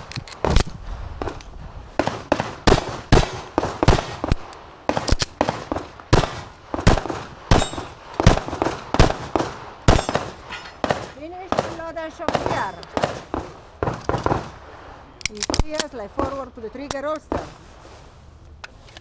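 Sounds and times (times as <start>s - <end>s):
pistol shots: 2.0s - 14.6s.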